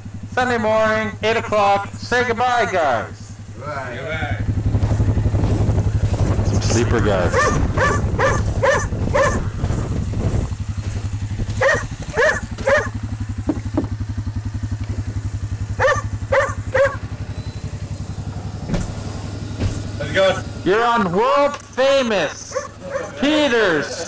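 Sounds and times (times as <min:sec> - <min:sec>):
vehicle engine idling: 0:00.0 - 0:24.0
dog barking: 0:07.3 - 0:09.5, 0:11.6 - 0:13.0, 0:15.8 - 0:17.1, 0:22.5 - 0:23.2.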